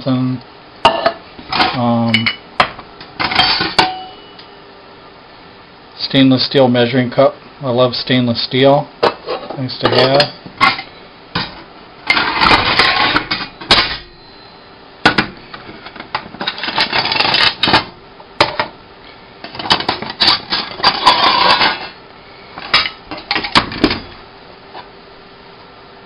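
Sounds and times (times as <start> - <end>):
metal tins and cookware clattering: 3.2 - 4.2, 9.1 - 14.1, 15.9 - 18.7, 19.5 - 22.0.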